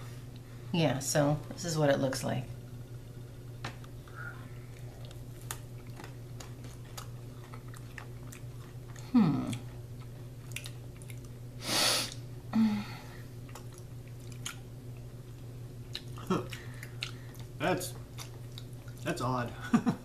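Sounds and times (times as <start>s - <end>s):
hum falling in pitch: 4.0s - 5.0s, 9.1s - 9.6s
people chewing crunchy crackers: 4.6s - 11.4s, 13.4s - 19.2s
breathy hiss: 11.6s - 13.2s.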